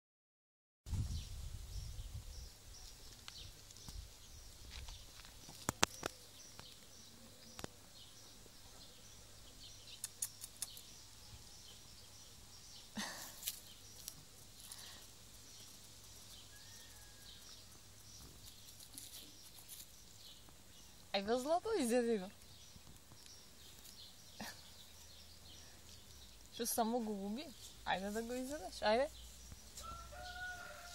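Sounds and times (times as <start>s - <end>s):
scuffing rustle: 27.5s - 30.9s.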